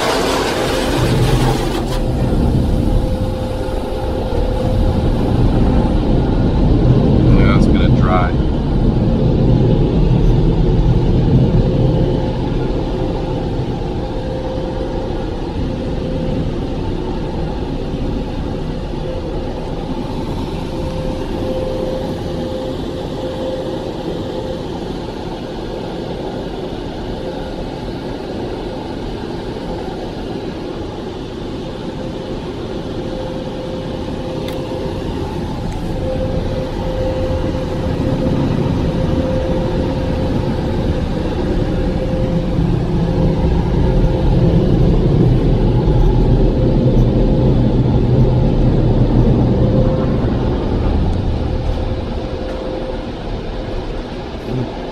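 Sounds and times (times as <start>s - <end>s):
car wash rushing: 0.0s - 23.5s
humming whine: 0.0s - 54.9s.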